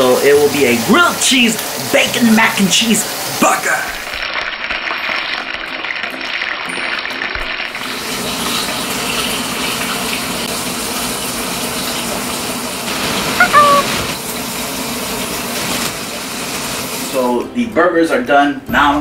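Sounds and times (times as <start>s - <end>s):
patties sizzling in a frying pan: 0.0s - 13.3s, 14.2s - 17.4s
short high-pitched cry: 13.4s - 14.0s.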